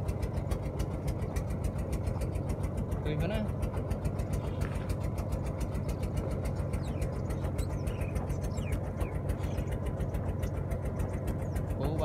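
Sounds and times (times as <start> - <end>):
engine idling: 0.0 - 12.0
faint bird chirps: 5.4 - 11.8.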